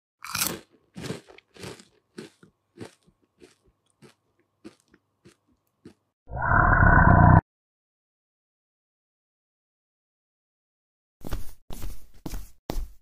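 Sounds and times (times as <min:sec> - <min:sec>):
short crunching noises: 0:00.2 - 0:06.0.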